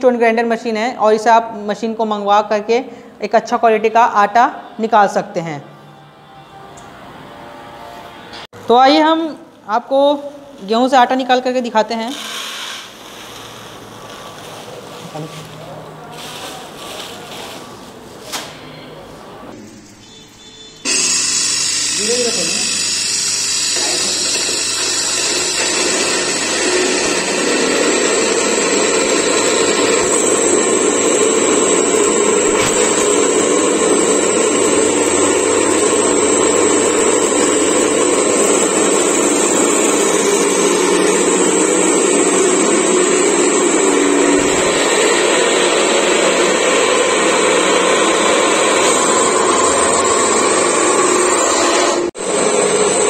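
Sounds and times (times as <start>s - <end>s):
electric stone grinder running: 20.8s - 53.0s.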